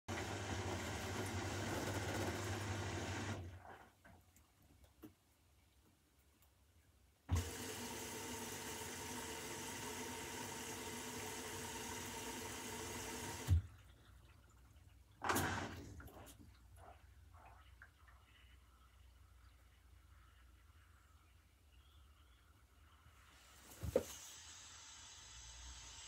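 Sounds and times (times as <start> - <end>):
washing machine water rushing in: 0.1 - 3.7, 7.3 - 13.9, 15.2 - 17.0.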